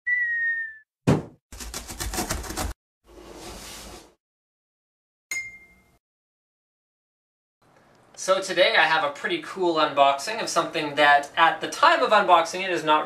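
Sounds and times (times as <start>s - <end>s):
whistle-like tone: 0.0s - 0.9s
sharp thump: 1.0s - 1.4s
ringing ping: 5.3s - 6.0s.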